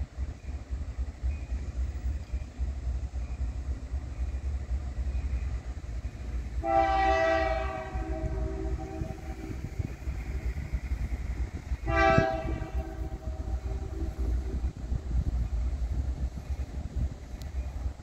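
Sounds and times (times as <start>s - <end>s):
locomotive air horn chord: 6.6s - 9.7s, 11.8s - 14.3s.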